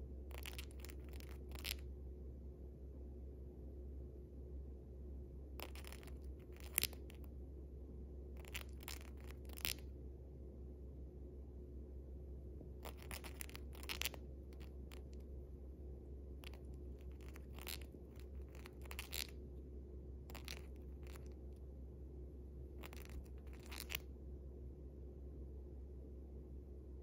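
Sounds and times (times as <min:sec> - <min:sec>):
bird grinding its beak: 0:05.6 - 0:07.0, 0:12.8 - 0:15.1, 0:16.4 - 0:19.3, 0:20.3 - 0:21.3, 0:22.8 - 0:24.0.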